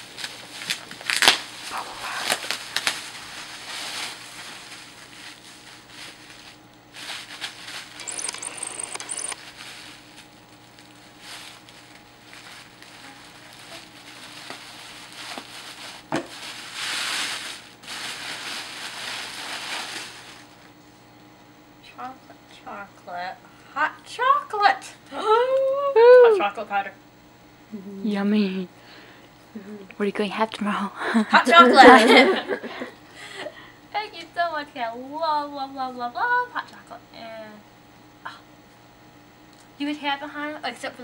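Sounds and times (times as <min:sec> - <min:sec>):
gift wrapping rustling and crackling: 0:00.1 - 0:20.6.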